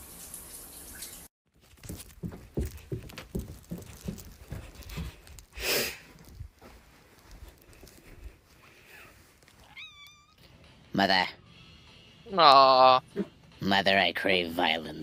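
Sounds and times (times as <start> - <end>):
shower water running: 0.0 - 1.3
footsteps on carpet: 1.6 - 9.7.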